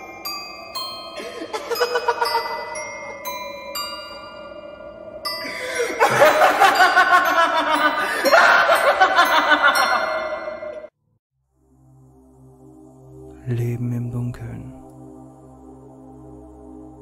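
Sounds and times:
ringing chime tones: 0.0 - 10.9.

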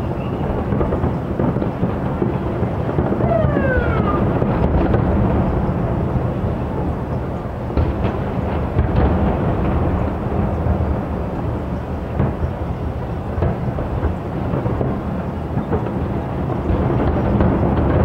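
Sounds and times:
firework whistle falling: 0.0 - 0.8, 3.0 - 5.7
distant fireworks booming: 0.0 - 18.0
sharp firework bangs: 0.0 - 18.0.

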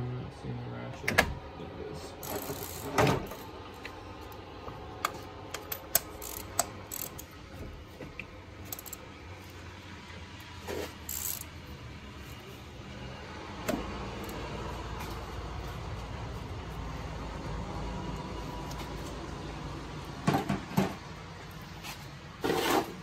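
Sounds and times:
tools clicking and rattling: 2.2 - 3.6, 5.0 - 7.4, 8.6 - 9.0, 11.0 - 11.5.

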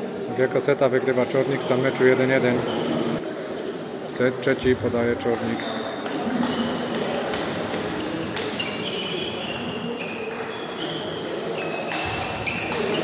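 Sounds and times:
murmur of voices: 0.0 - 13.0
table tennis balls clicking: 5.3 - 13.0.

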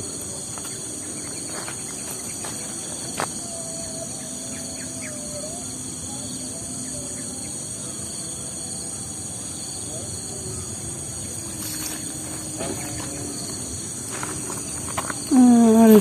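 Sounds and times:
insect chorus drone: 0.0 - 16.0
faint wavering call: 15.3 - 16.0.

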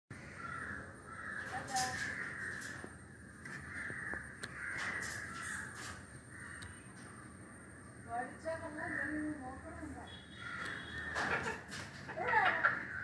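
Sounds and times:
macaws cawing: 0.1 - 7.2, 8.7 - 9.5, 10.3 - 13.0.

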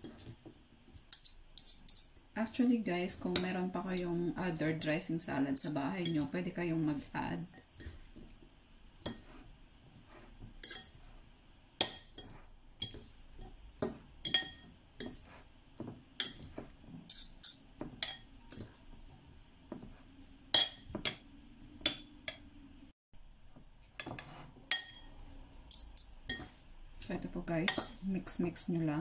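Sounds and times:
forks clinking against glass bowl: 1.1 - 2.1, 10.6 - 11.0, 14.2 - 15.2, 16.2 - 16.5, 17.1 - 18.8.

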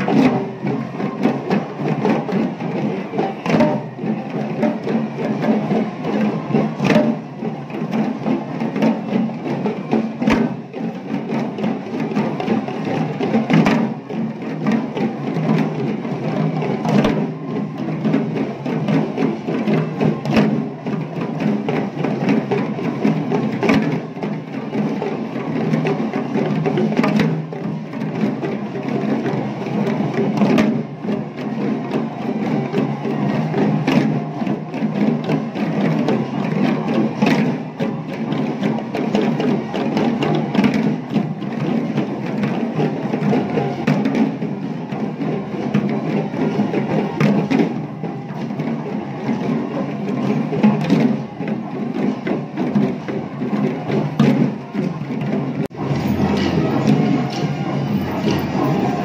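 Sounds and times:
hand drums beating fast rhythm: 0.0 - 59.0
loud drum accent stroke: 55.8 - 59.0.

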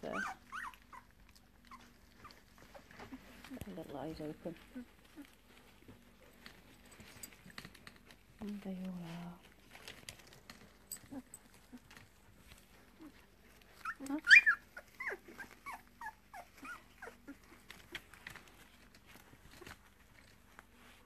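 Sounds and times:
puppy whining: 0.0 - 3.6, 4.6 - 8.0, 10.1 - 21.0.

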